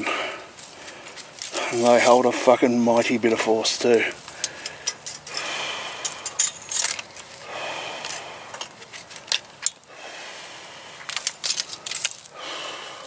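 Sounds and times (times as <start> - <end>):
barbed wire clicking and jingling: 3.0 - 7.4, 11.0 - 12.4.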